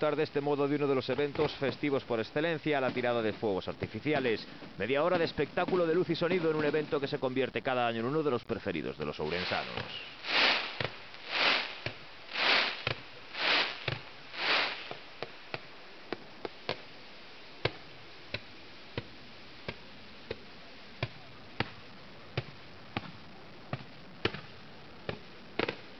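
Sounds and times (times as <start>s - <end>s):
faint steady hiss: 0.0s - 25.9s
fireworks bangs and cracks: 1.0s - 7.0s, 9.2s - 16.8s, 17.7s - 25.9s
fireworks whooshing: 9.2s - 16.2s.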